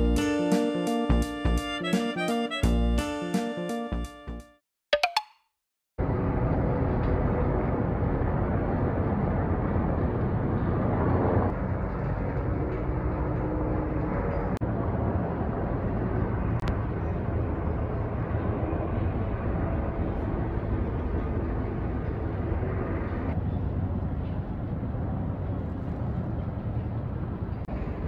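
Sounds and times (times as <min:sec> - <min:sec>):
helicopter rotors droning overhead: 0:06.0 - 0:28.0.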